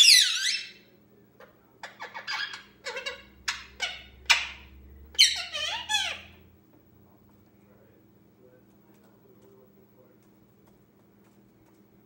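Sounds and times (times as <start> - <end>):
parakeet squawking and chirping: 0.0 - 0.9, 1.8 - 6.5.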